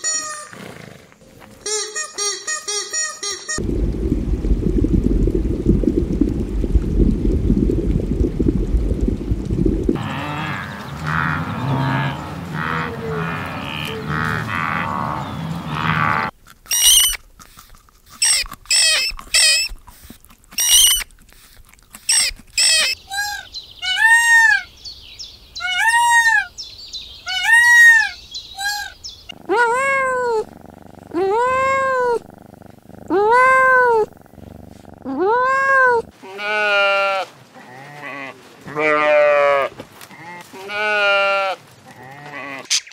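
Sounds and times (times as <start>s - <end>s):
crackling noise: 1.0s - 1.8s, 3.6s - 23.5s, 28.5s - 36.4s
very high squeaks: 1.6s - 3.6s, 16.7s - 17.2s, 18.2s - 19.7s, 20.6s - 21.1s, 22.1s - 23.5s
low rumble of water: 3.6s - 16.4s, 28.2s - 36.2s
kitten mewing: 29.3s - 32.3s, 32.9s - 34.2s, 34.8s - 36.1s.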